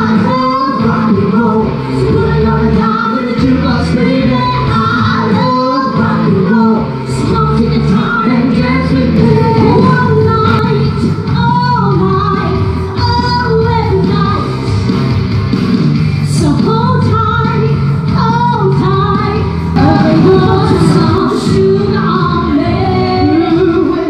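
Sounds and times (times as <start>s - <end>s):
woman singing rock song: 0.0s - 14.6s, 16.3s - 24.0s
rock band playing: 17.6s - 22.7s.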